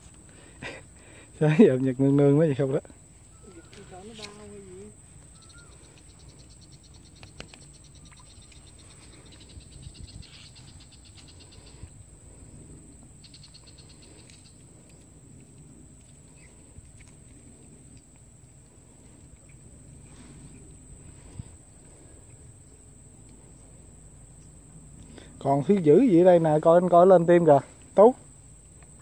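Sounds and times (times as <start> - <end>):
insects chirring: 0.0 - 29.0
fast pulsing insect trill: 0.6 - 16.8.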